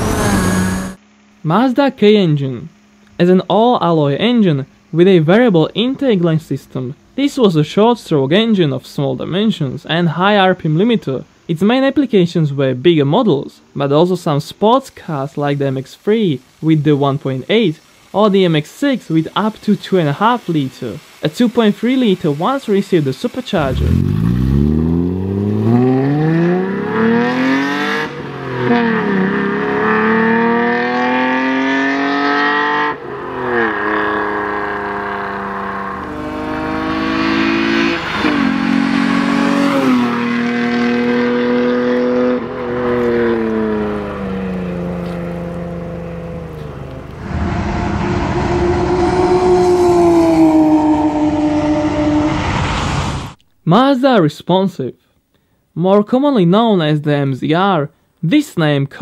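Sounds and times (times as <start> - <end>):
car engine revving hard: 0.0 - 1.0, 23.6 - 53.0.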